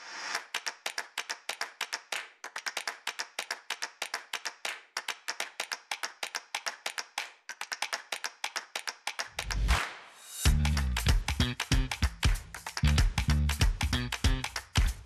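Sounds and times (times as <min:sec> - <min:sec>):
sharp clicks and taps: 0:10.5 - 0:14.9.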